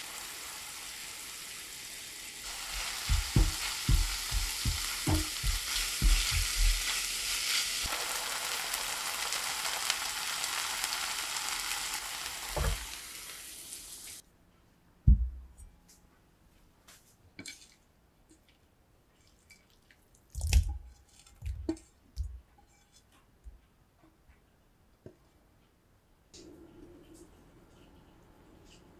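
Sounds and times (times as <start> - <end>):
food sizzling in a frying pan: 0.0 - 14.2.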